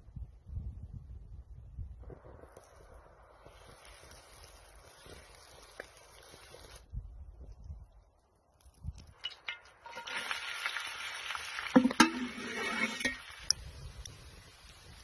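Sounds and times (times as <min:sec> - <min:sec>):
onion sizzling in hot oil: 0:09.8 - 0:15.0.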